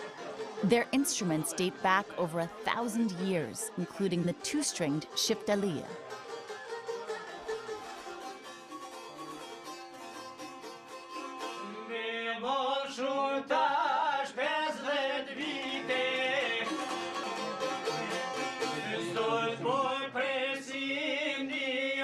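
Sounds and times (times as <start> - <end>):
plucked two-stringed lute: 3.9 - 11.9, 15.6 - 19.8
man singing folk song: 11.5 - 22.0.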